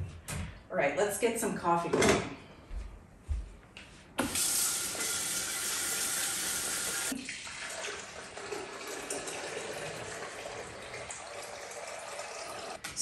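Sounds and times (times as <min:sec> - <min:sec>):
water poured into coffee maker: 0:04.2 - 0:12.8.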